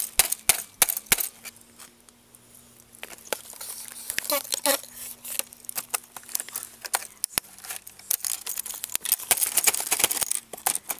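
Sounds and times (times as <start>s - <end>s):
plastic keycaps clicking: 5.4s - 10.9s.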